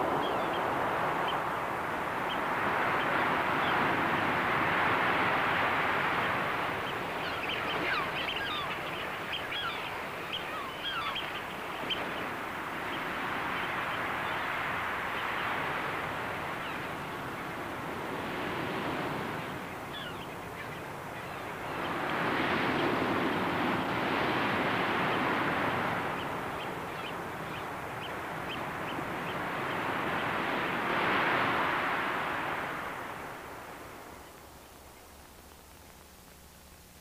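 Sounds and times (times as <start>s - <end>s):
sea surf rushing: 0.0s - 34.2s
bird chirps: 7.2s - 12.0s.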